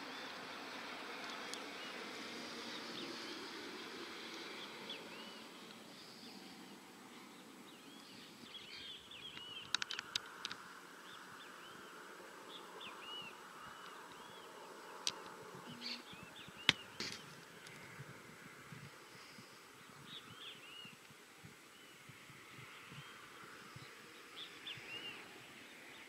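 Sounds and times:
low steady hiss: 0.0 - 26.0
small birds chirping: 0.0 - 26.0
sharp clicks: 9.3 - 10.6.

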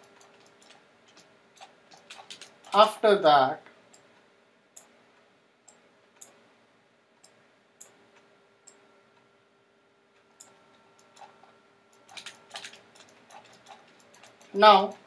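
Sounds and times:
computer mouse clicks: 0.0 - 2.8, 10.4 - 15.0
faint electrical hum: 0.0 - 15.0.

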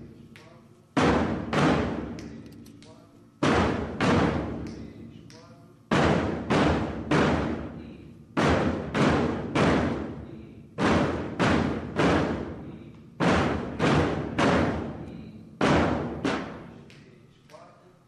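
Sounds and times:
bass drums struck in unison: 1.0 - 2.4, 3.4 - 4.8, 5.9 - 16.8.

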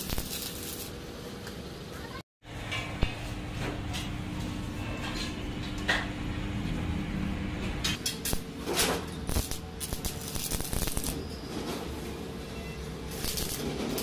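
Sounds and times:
arc welder crackling: 0.0 - 1.6, 8.0 - 11.6, 13.0 - 14.0.

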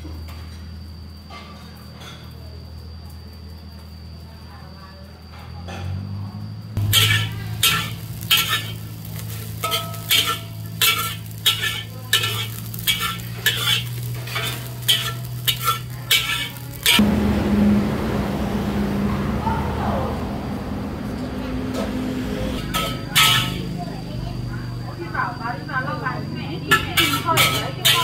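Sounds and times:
metal spatula scraping a wok: 6.8 - 17.0, 22.6 - 23.7, 26.7 - 28.0
steady hiss: 6.8 - 17.0.

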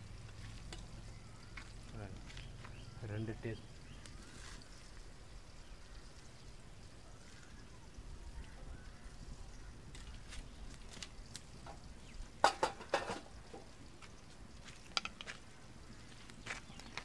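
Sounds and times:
metal kitchenware clinking: 12.4 - 13.4.

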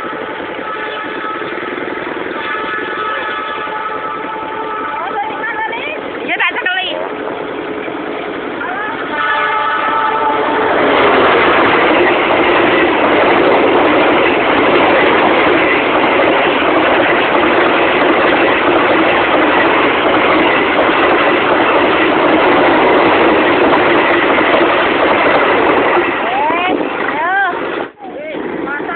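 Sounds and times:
freight train wheels on rails: 0.0 - 28.9.

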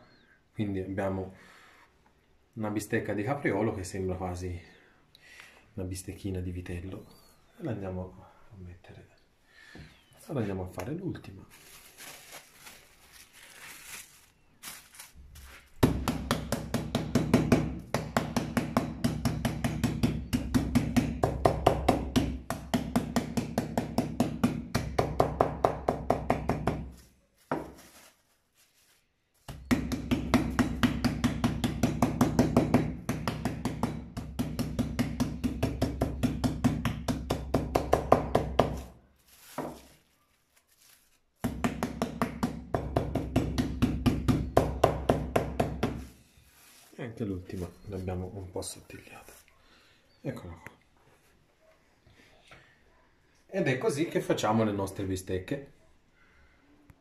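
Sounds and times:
meat pounder beating meat: 15.8 - 26.9, 29.5 - 38.8, 41.4 - 46.0.

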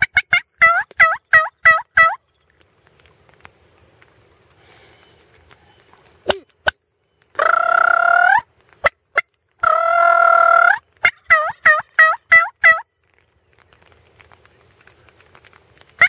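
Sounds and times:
turkey calls: 0.0 - 16.0
sharp clicks: 2.3 - 7.5, 13.0 - 16.0.

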